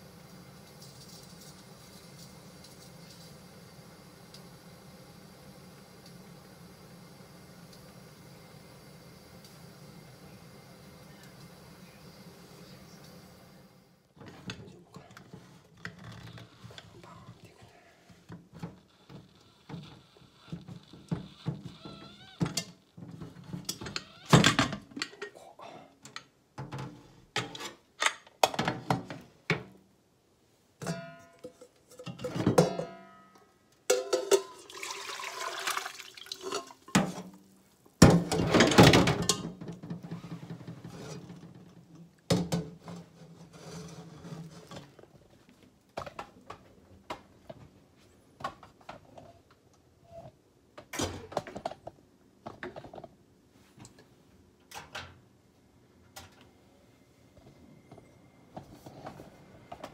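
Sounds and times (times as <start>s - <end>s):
metal pots clanking in sink: 30.8s - 33.3s, 33.9s - 37.4s, 38.0s - 39.7s
liquid pouring and splashing: 34.0s - 37.0s.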